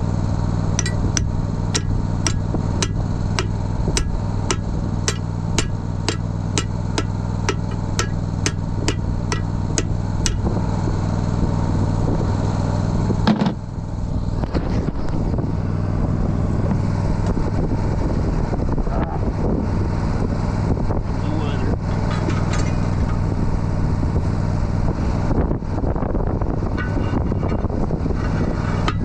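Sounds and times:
tractor engine idling: 0:00.0 - 0:14.4
hammer blows on steel: 0:00.8 - 0:10.6
heavy metal clang: 0:00.8 - 0:10.7, 0:26.7 - 0:29.0.

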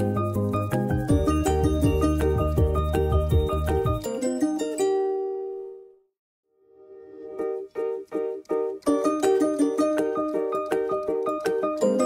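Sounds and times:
light bouncy music with beat: 0:00.0 - 0:04.1.

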